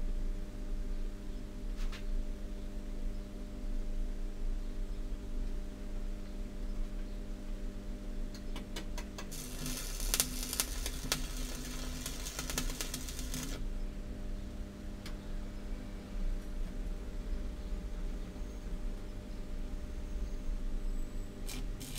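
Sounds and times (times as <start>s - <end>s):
steady low hum: 0.0s - 21.9s
welder arc crackling: 9.3s - 13.6s, 21.4s - 21.9s.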